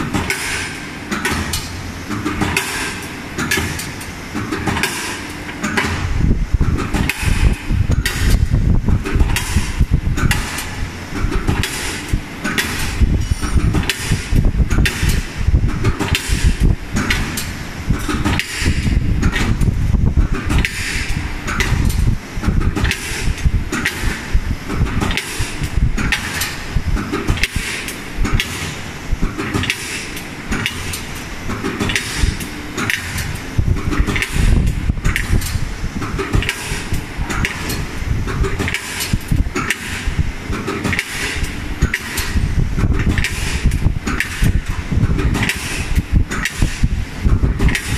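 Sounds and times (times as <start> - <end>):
low machine rumble: 0.0 - 47.9
punching machine sharp clanks: 0.0 - 47.9.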